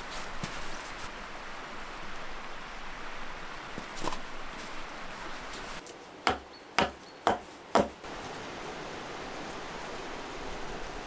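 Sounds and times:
firewood being chopped: 0:06.3 - 0:08.0.

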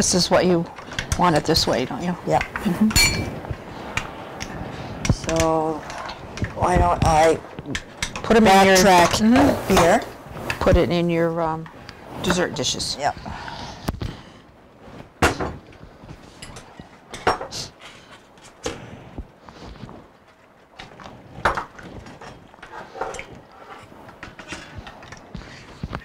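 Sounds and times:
glass dishes clinking: 0:02.9 - 0:03.4.

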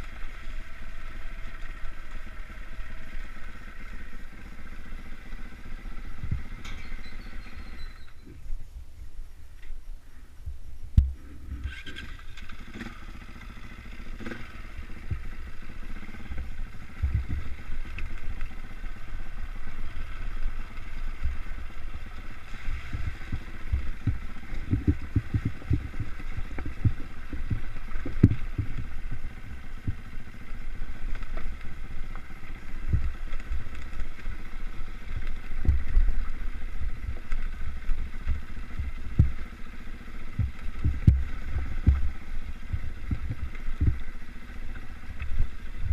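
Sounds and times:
dirt bike engine running: 0:00.0 - 0:08.6, 0:10.9 - 0:45.9
low thumps and knocks: 0:10.4 - 0:11.6, 0:17.0 - 0:17.6, 0:22.8 - 0:29.2, 0:35.6 - 0:36.2, 0:36.8 - 0:39.4, 0:40.4 - 0:44.1, 0:45.1 - 0:45.9.

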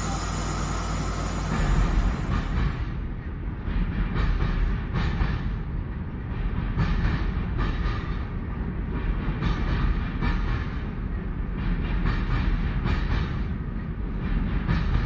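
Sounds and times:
model train wheels rumbling: 0:00.0 - 0:03.0
wheels click-clacking on rail joints: 0:00.0 - 0:15.0.

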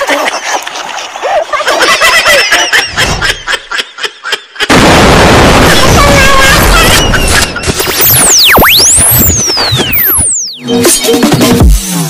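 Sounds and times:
sharp pops and bangs: 0:04.7 - 0:10.2
short squeaky sounds: 0:06.6 - 0:11.3.

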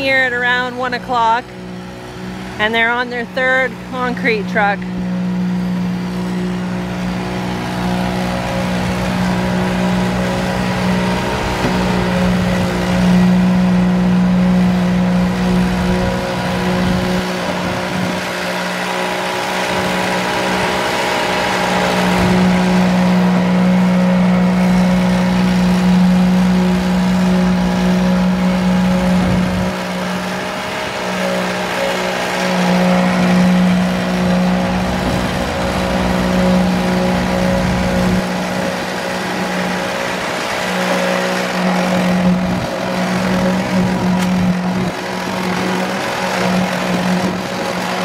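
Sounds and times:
pump truck engine humming: 0:00.0 - 0:48.0.

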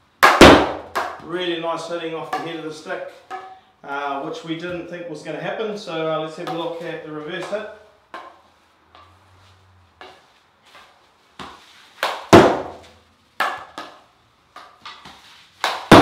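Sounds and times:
hockey stick hitting ball: 0:00.2 - 0:01.4, 0:02.2 - 0:03.6, 0:06.4 - 0:09.2, 0:10.0 - 0:16.0.

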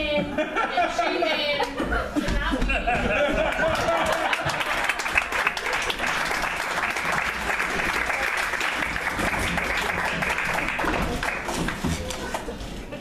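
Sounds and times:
audience applauding: 0:03.5 - 0:12.1.

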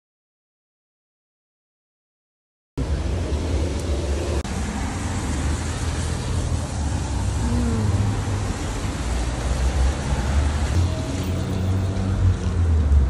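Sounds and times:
street traffic rumble: 0:02.8 - 0:13.0.

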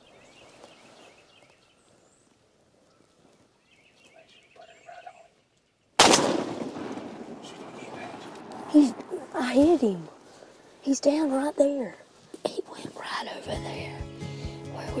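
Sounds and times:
faint bird calls: 0:00.0 - 0:06.0
loud echoing gunshot: 0:06.0 - 0:09.2.

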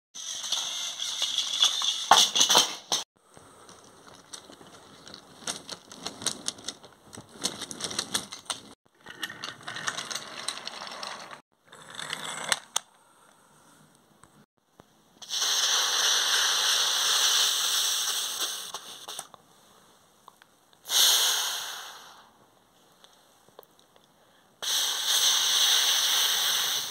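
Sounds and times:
toy trains rattling on track: 0:00.2 - 0:02.8, 0:03.7 - 0:12.8
quick clicks and clacks: 0:04.1 - 0:08.8
steady hissing noise: 0:15.2 - 0:26.9.

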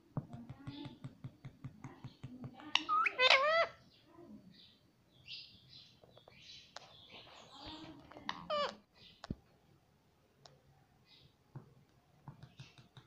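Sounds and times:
beak tapping on hard plastic: 0:00.1 - 0:02.9, 0:11.5 - 0:13.0.

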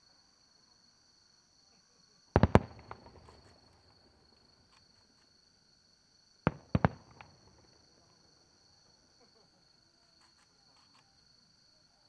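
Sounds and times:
insects chirring: 0:00.0 - 0:12.0
firework shells booming: 0:02.4 - 0:04.2, 0:06.5 - 0:07.8.

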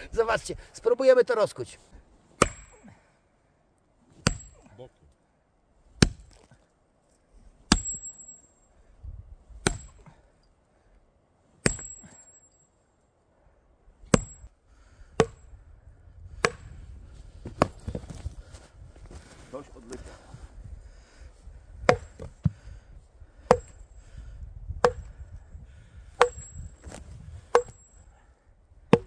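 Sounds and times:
high metallic ring: 0:07.7 - 0:08.8.

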